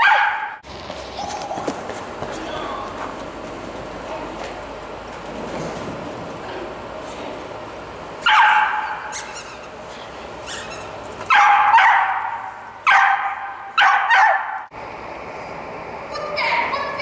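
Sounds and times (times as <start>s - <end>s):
small dog barking: 0.0s - 0.6s, 8.2s - 9.3s, 11.3s - 14.6s.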